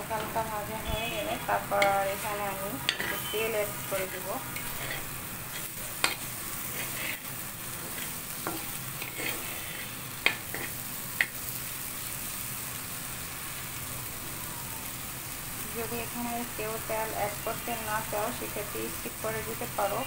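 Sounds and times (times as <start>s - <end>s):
food sizzling: 0.0s - 20.0s
spatula scraping in a pan: 1.2s - 11.4s.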